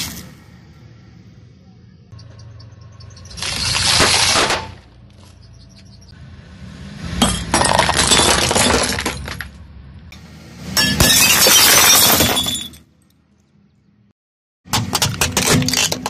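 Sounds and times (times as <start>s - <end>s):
glass tubes shattering under tyre: 3.2s - 4.9s, 7.2s - 9.6s, 10.7s - 13.2s, 14.9s - 16.0s.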